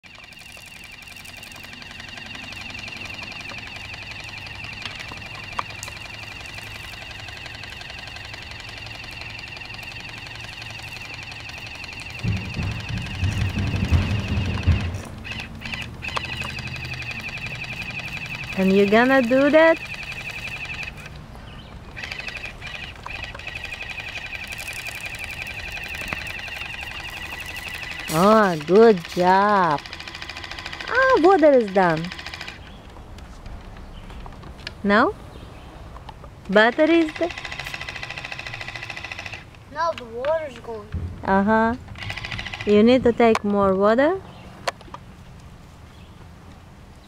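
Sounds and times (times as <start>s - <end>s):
cicadas buzzing: 0.0s - 32.8s, 36.5s - 39.6s.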